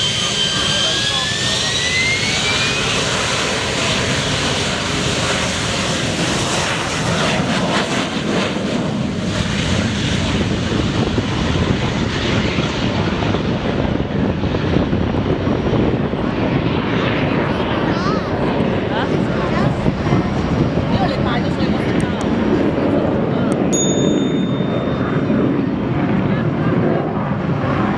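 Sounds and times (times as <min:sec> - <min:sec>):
jet engine roaring: 0:00.0 - 0:27.9.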